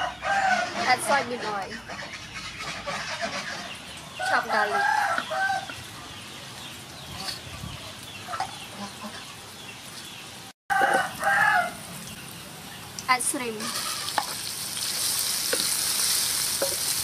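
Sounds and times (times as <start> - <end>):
rooster crowing: 0.0 - 0.8, 4.3 - 5.7, 10.7 - 11.9.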